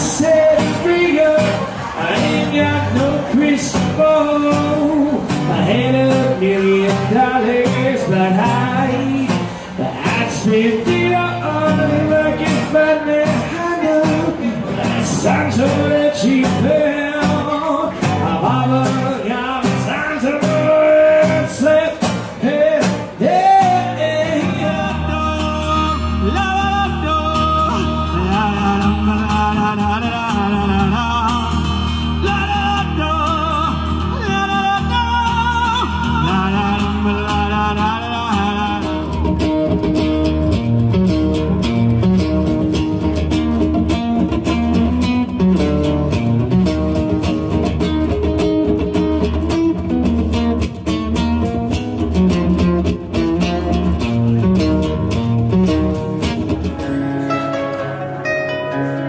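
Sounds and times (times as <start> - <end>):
man singing: 0.0 - 40.4
strummed acoustic guitar: 0.0 - 59.0
song with heavy bass: 39.0 - 59.0.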